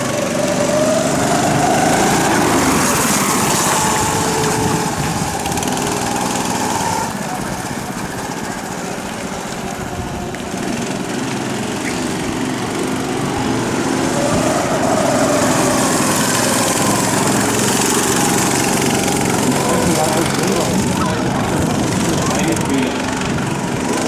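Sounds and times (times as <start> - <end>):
go-kart engine revving: 0.0 - 24.0.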